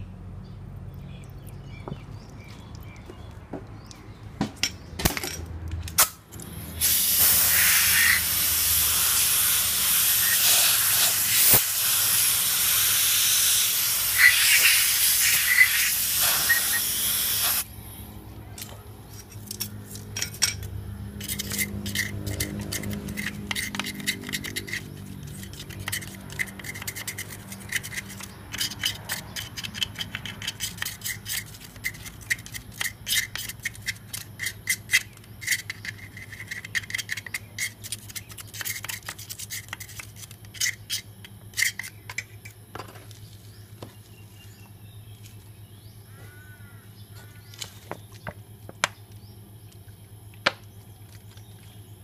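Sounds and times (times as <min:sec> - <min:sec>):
steady low hum: 0:14.9 - 0:52.0
scrubbing and scraping on metal cover: 0:18.6 - 0:42.5.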